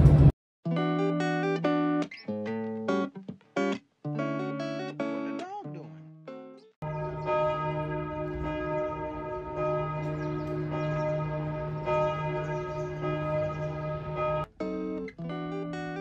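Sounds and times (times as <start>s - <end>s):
church bells ringing: 6.8s - 14.5s.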